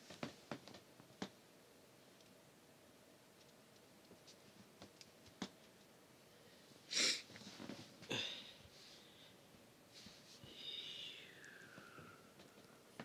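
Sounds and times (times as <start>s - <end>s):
person exhaling sharply through nose: 6.9s - 7.3s.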